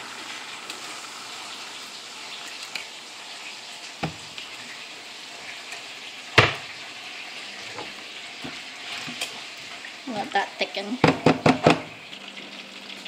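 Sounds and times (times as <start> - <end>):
sauce sizzling and bubbling: 0.0 - 13.0.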